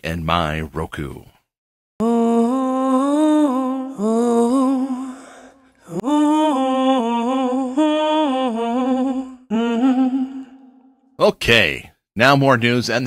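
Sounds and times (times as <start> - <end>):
person humming a tune: 2.0 - 10.8.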